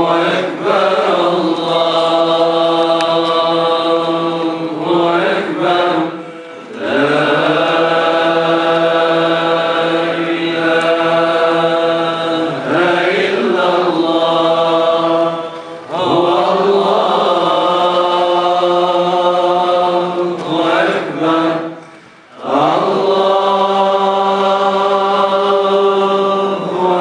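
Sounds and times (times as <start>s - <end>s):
men chanting: 0.0s - 21.8s, 22.4s - 27.0s.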